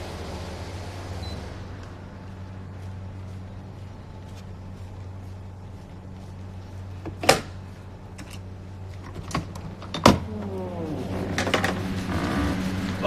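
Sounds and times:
steady low hum: 0.0s - 13.0s
door creaking: 9.1s - 12.9s.

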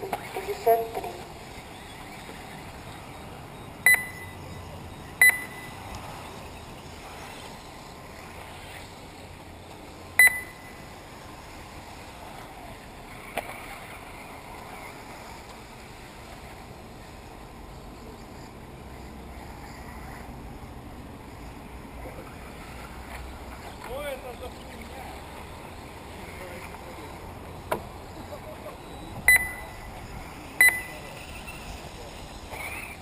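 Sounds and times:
outdoor background hiss: 0.0s - 33.0s
loud electronic beeps: 2.8s - 5.9s, 10.2s - 10.8s, 28.7s - 30.0s, 30.6s - 31.7s.

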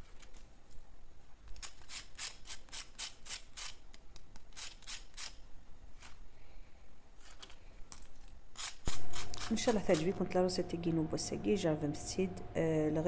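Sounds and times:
knife sawing through crispy pastry: 1.6s - 3.8s.

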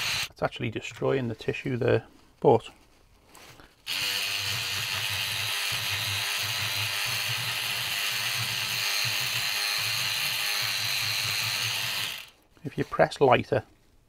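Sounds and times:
power brush whirring: 0.0s - 0.3s, 3.8s - 12.4s.

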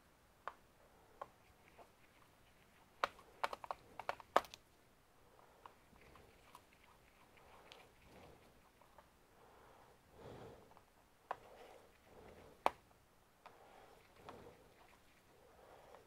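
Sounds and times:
plastic clicks and snaps: 3.0s - 4.7s.

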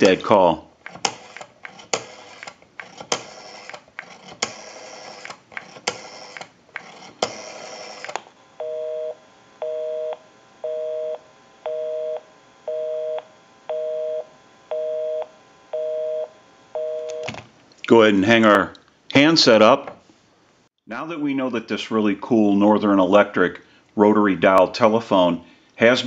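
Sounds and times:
rotary phone dial whirring: 0.8s - 8.4s
two-note busy signal tone: 8.6s - 17.3s.

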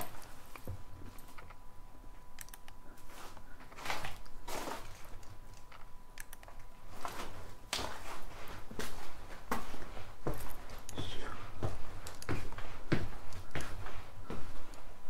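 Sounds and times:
footsteps scuffing: 3.1s - 5.2s, 6.9s - 14.7s.

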